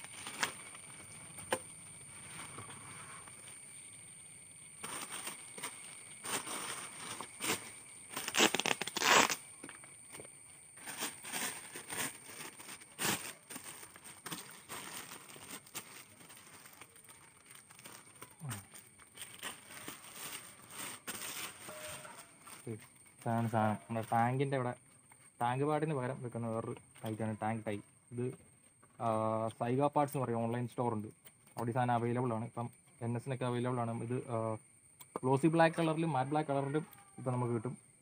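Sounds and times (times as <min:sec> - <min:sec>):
plastic bag crinkling: 0:04.8 - 0:09.4, 0:10.8 - 0:23.3.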